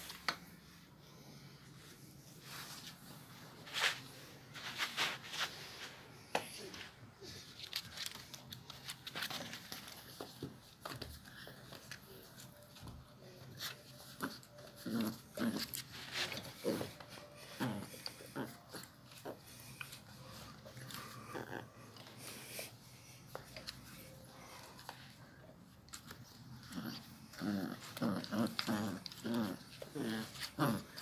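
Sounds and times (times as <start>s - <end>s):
scuffling and rustling: 1.8s - 21.2s.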